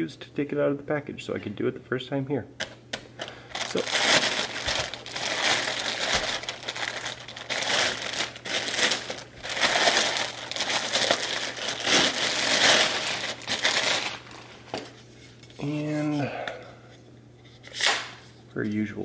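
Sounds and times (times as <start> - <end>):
packaging rustling and crinkling: 3.2 - 15.0.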